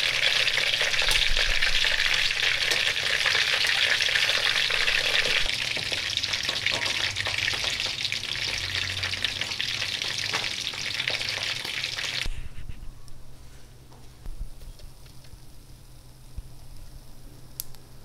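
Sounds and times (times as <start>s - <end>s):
duck deep-frying in oil: 0.0s - 12.4s.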